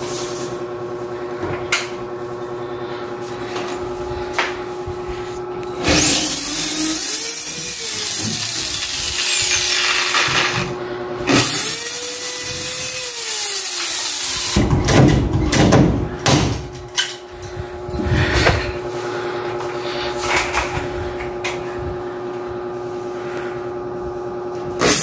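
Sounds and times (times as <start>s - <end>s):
electric drill boring into plastic: 5.8s - 10.7s, 11.3s - 14.6s, 24.8s - 25.0s.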